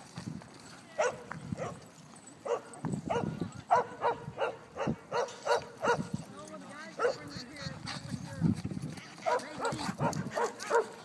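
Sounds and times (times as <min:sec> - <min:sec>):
dog barking: 0:01.0 - 0:01.8, 0:02.4 - 0:06.2, 0:07.0 - 0:07.3, 0:09.2 - 0:11.0.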